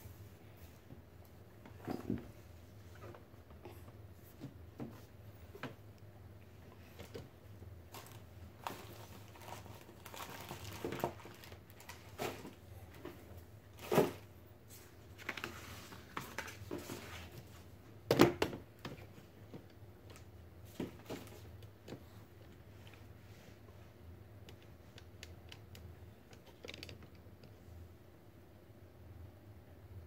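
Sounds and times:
cardboard and paper rustling: 0:07.9 - 0:17.7.

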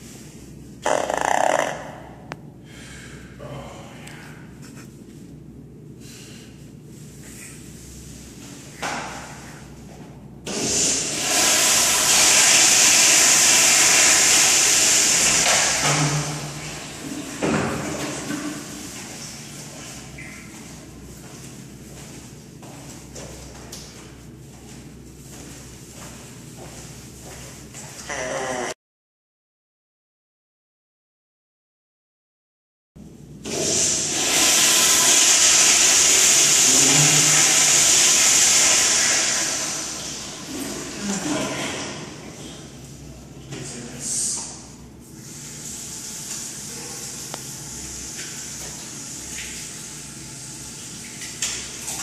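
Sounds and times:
toilet flushing: 0:10.4 - 0:20.6, 0:33.4 - 0:43.6, 0:45.0 - 0:52.0.

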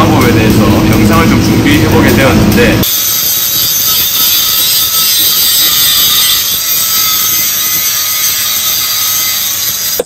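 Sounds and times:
angle grinder cutting steel: 0:02.1 - 0:10.0.

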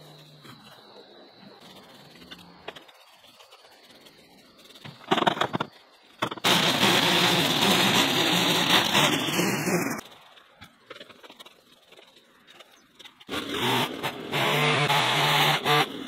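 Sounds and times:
garden power tool engine running: 0:06.3 - 0:10.0, 0:13.3 - 0:16.0.

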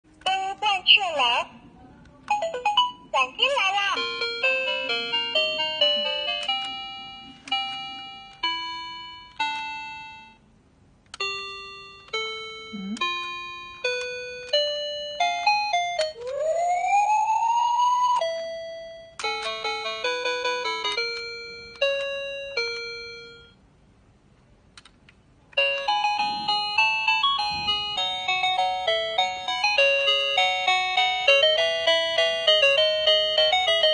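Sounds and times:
toy chime tones and tunes: 0:03.8 - 0:10.5, 0:11.2 - 0:23.6, 0:25.6 - 0:33.9.

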